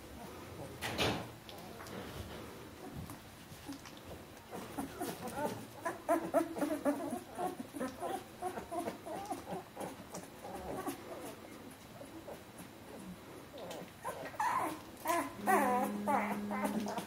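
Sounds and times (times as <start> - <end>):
puppies whimpering and squeaking: 4.5 - 13.0, 13.6 - 17.0.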